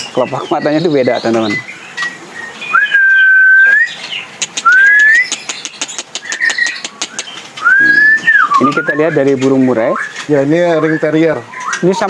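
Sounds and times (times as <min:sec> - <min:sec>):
songbirds chirping and clicking: 0:00.0 - 0:12.0
long rising whistles: 0:07.6 - 0:09.2.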